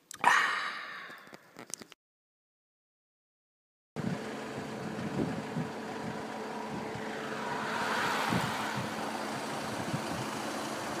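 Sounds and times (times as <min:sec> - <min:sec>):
vehicle engine hum: 0:04.0 - 0:11.0
tyre and air noise: 0:05.0 - 0:10.4.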